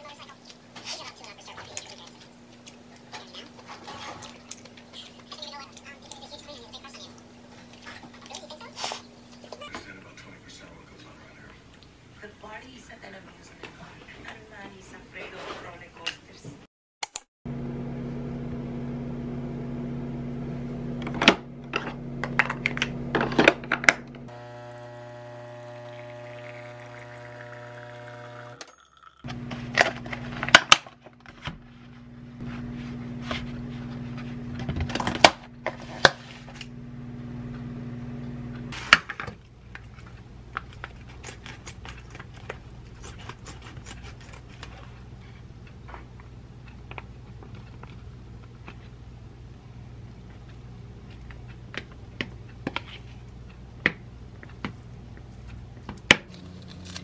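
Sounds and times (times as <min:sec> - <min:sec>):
coffee machine buzzing: 0:17.5 - 0:30.6, 0:32.1 - 0:38.7
steady low hum: 0:31.6 - 0:38.8.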